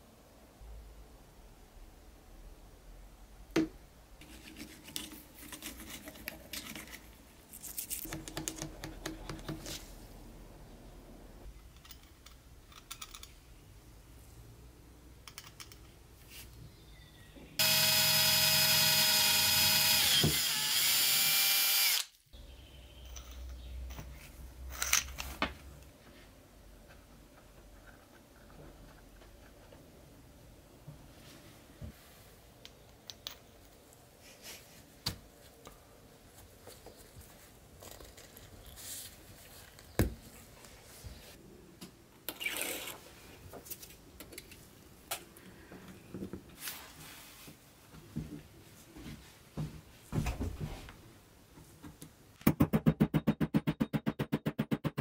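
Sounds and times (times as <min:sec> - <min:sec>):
small metal parts clicking: 0:11.7 - 0:13.4
small electric power tool running: 0:17.6 - 0:22.1.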